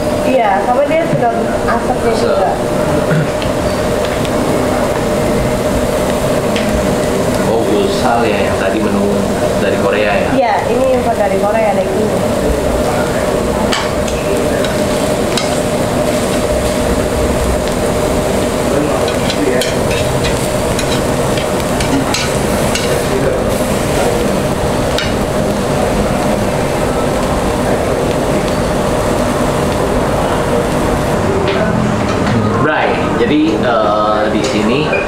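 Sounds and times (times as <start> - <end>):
meat sizzling on grill: 0.0 - 32.2.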